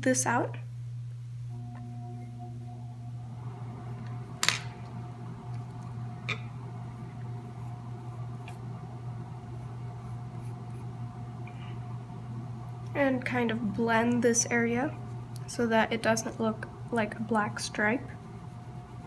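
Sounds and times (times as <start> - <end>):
low room hum: 0.0 - 19.0
pencil rubbing on paper: 9.5 - 10.9, 17.6 - 19.0.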